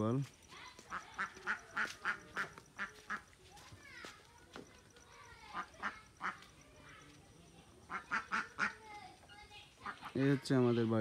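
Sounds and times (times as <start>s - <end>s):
ducks quacking: 0.8s - 3.4s, 5.4s - 6.6s, 7.8s - 8.9s, 9.8s - 10.4s
high falling duck calls: 0.9s - 3.3s, 5.5s - 6.4s, 7.9s - 8.8s.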